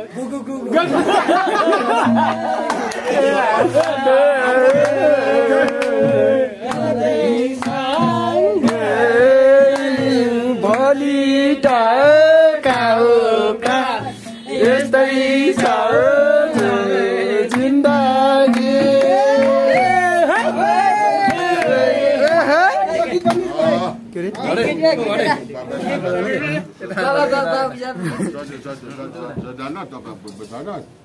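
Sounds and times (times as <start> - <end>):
steady repeating beat: 1.8 - 24.2
person singing: 2.1 - 24.0.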